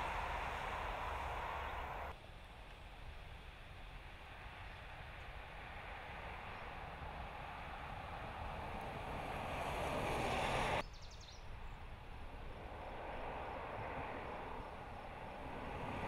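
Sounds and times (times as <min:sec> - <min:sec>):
car driving past: 0:00.0 - 0:02.1, 0:07.3 - 0:10.8.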